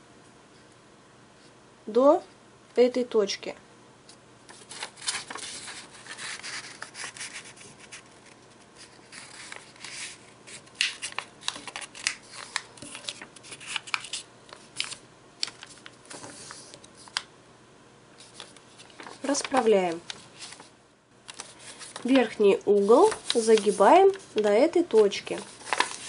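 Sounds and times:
fingers swiping along paper fold: 4.5 - 14.2
paper rustling: 4.5 - 17.3, 18.2 - 26.0.

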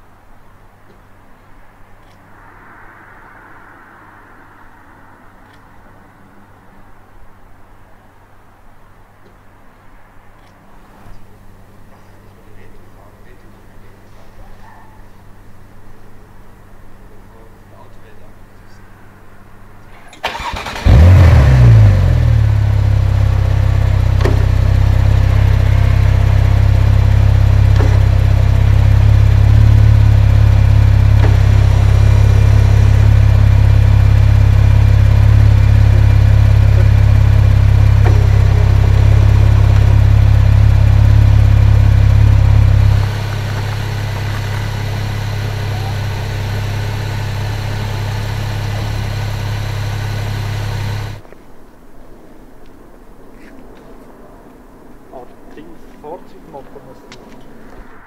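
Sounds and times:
car engine idling: 20.2 - 51.2.

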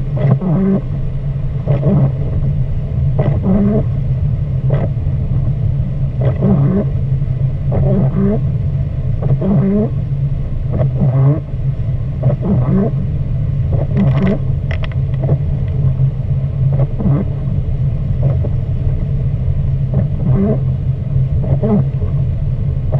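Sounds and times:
car engine and tyres rumbling: 0.0 - 22.9
windshield wipers squeaking: 0.2 - 0.8, 1.7 - 2.2, 3.2 - 3.9, 7.7 - 8.4, 9.2 - 9.9, 12.2 - 13.0, 13.7 - 15.9, 16.7 - 17.5, 19.9 - 20.7, 21.4 - 22.2.

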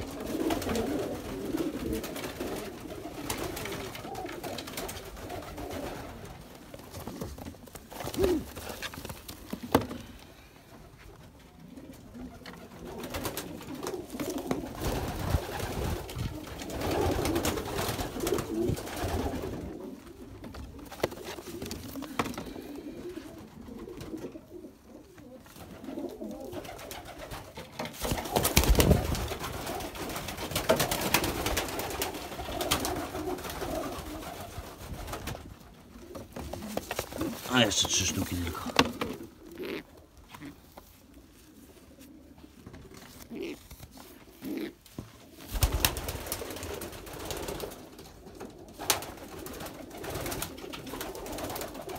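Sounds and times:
wings flapping: 0.0 - 9.9, 12.4 - 19.8, 25.6 - 39.8, 45.3 - 51.9
pigeons cooing: 0.0 - 51.9.

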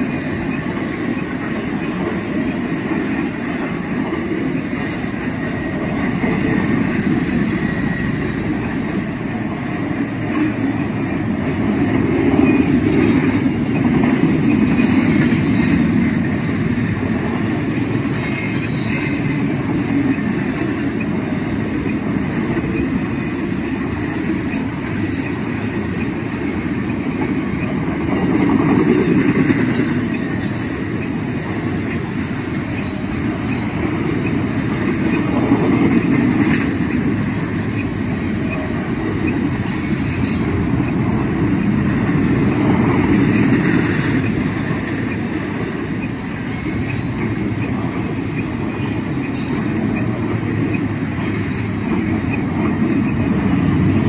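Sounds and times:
train wheels rumbling on rail: 0.0 - 54.0
high-pitched wheel squeals: 1.6 - 4.1, 6.4 - 8.3, 26.5 - 29.2, 38.2 - 40.8, 51.1 - 51.9.

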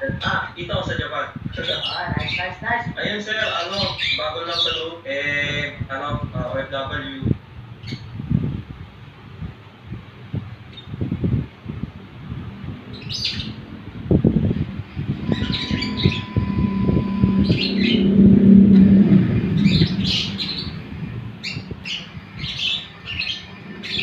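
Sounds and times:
small birds chirping: 0.0 - 5.7, 7.0 - 8.5, 10.6 - 11.8, 12.6 - 24.0
low rumble: 7.2 - 24.0.

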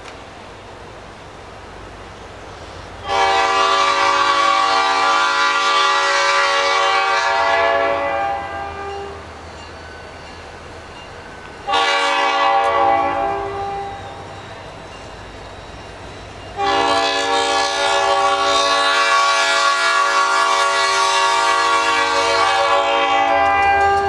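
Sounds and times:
train air horn blasts: 3.0 - 9.2, 11.6 - 14.2, 16.6 - 24.0.

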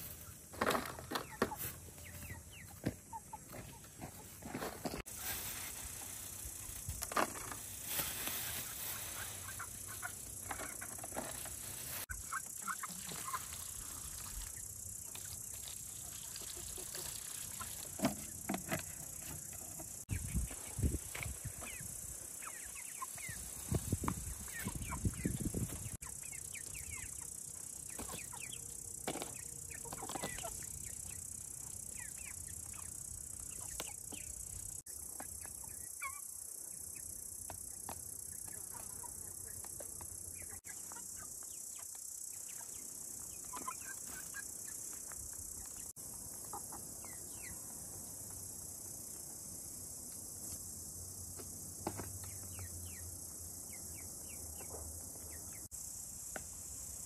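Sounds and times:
chickens clucking: 0.1 - 31.2, 37.8 - 44.6, 45.6 - 47.8.

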